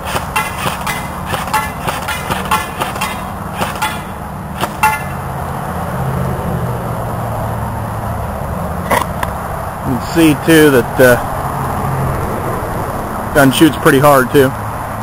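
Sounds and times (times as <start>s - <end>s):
airsoft gun shots: 0.0s - 5.2s
pellets pinging off steel target: 0.0s - 5.2s.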